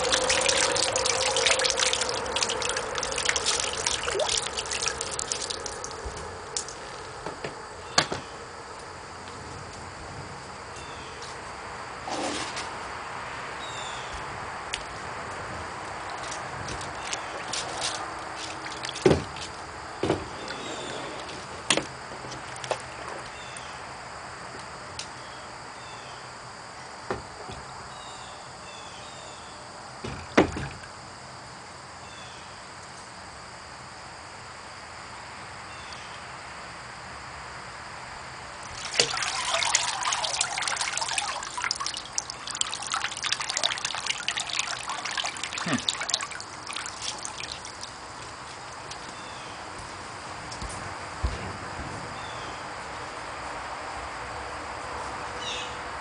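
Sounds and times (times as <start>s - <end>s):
water splashing and trickling: 0.0s - 7.2s, 16.0s - 21.3s, 22.3s - 23.4s, 38.6s - 49.2s.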